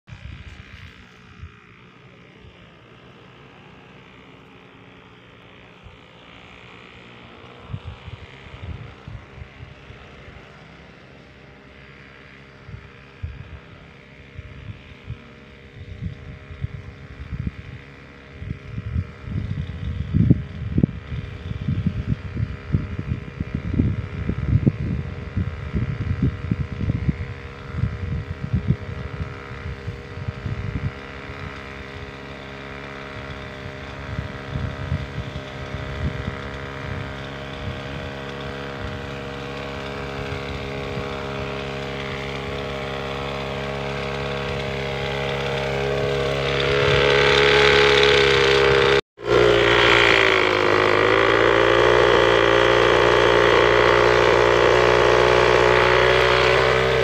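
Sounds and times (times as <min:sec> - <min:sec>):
backpack sprayer motor droning: 0:00.1 - 0:57.0
wind buffeting microphone: 0:07.6 - 0:10.4, 0:14.3 - 0:57.0.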